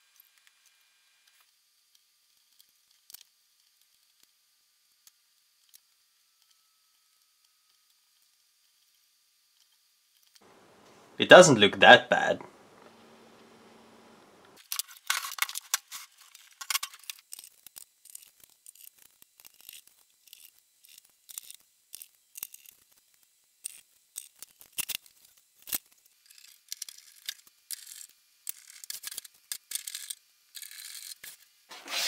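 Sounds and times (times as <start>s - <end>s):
screws clicking and scraping: 14.6s - 20.5s, 26.3s - 31.4s
metal case being reassembled: 16.6s - 17.1s.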